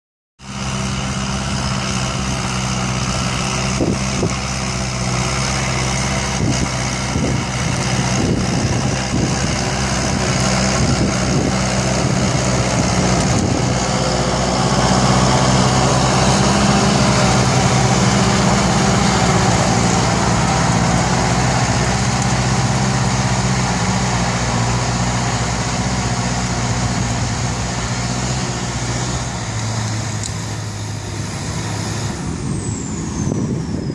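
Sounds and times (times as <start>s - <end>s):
tractor diesel engine under load: 0.4s - 33.9s.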